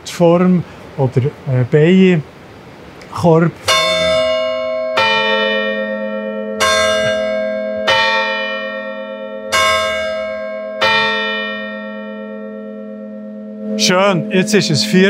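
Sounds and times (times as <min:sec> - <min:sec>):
low bell hum: 0:03.6 - 0:15.0
church bell strikes: 0:03.7 - 0:15.0.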